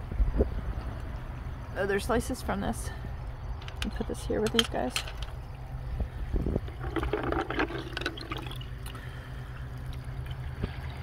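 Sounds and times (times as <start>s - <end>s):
steady low rumble: 0.0s - 11.0s
liquid splashing in a bucket: 5.2s - 11.0s.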